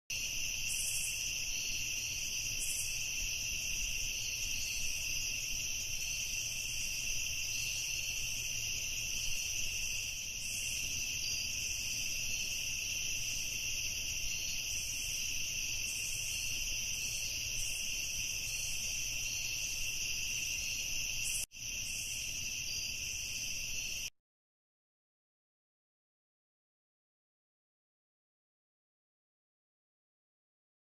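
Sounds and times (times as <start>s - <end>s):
insects trilling: 0.1s - 24.1s.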